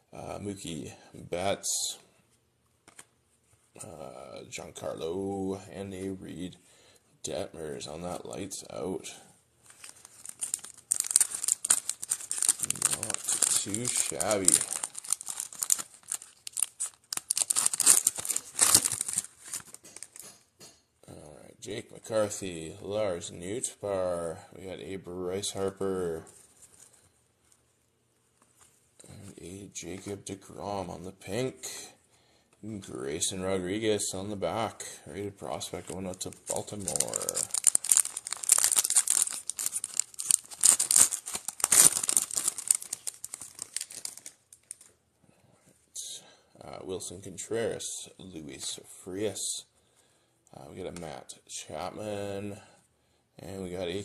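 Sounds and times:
foil wrapper tearing and crinkling: 9.7 - 20.3, 35.8 - 44.9.

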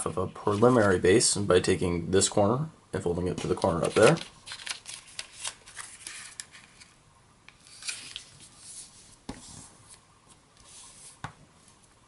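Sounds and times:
paper rustling and sliding: 0.3 - 1.0, 3.3 - 7.0, 7.6 - 11.8.

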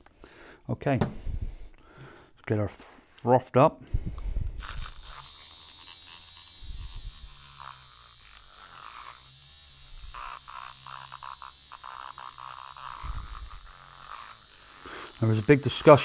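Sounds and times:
mini frother humming and whining: 3.9 - 16.0.

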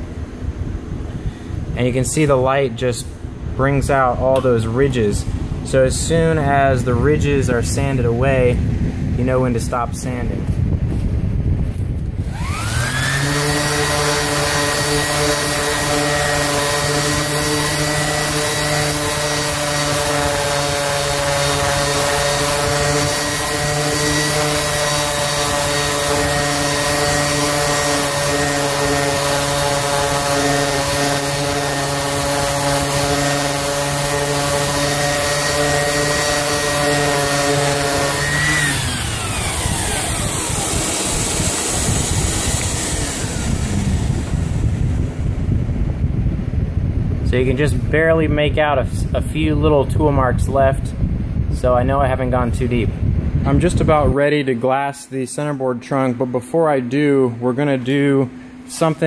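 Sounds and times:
steady rushing noise: 0.0 - 55.3
orbital sander running: 9.2 - 48.6
sanding pad hissing on wood: 12.2 - 44.8.

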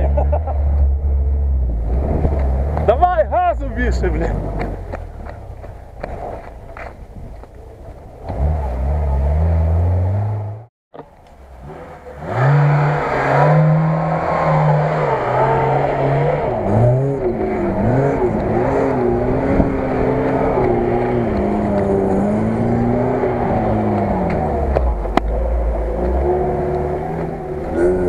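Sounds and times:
car engine revving hard: 11.6 - 28.0.

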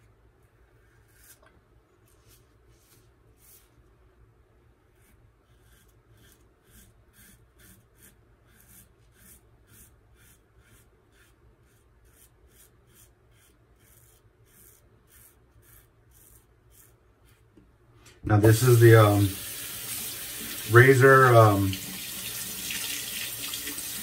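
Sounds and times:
razor scraping stubble: 4.9 - 17.6.

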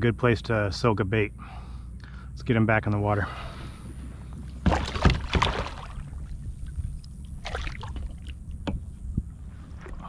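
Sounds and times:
water splashing beside a kayak: 4.5 - 10.0.

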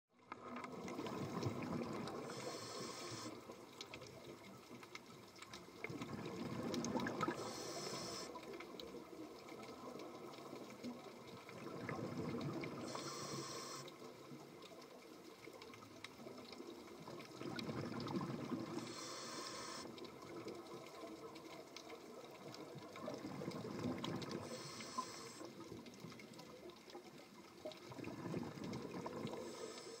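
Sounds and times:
exhaled bubbles rushing: 0.7 - 2.4, 5.8 - 7.5, 11.3 - 12.8, 17.2 - 18.8, 22.8 - 24.6, 27.7 - 29.6
scuba regulator air hiss: 2.3 - 3.4, 7.3 - 8.4, 12.8 - 14.0, 18.8 - 20.0, 24.4 - 25.5, 29.3 - 30.0.

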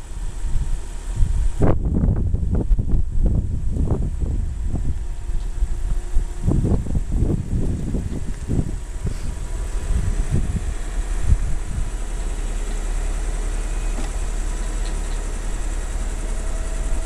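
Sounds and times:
car engine idling: 0.0 - 17.0
motor whine: 0.0 - 17.0.

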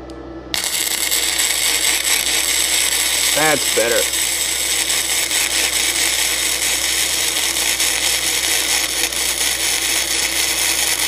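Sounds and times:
welding arc crackling hiss: 0.5 - 11.0
person speaking: 3.3 - 4.2.

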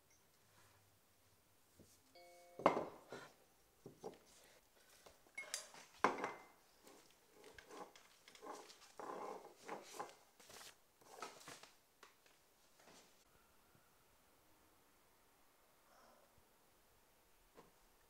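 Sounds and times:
hard objects knocking on desk: 2.6 - 3.0.

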